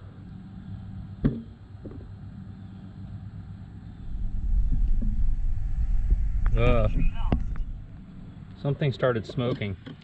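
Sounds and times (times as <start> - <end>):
low background noise: 0.0 - 10.0
low rumble: 3.7 - 9.0.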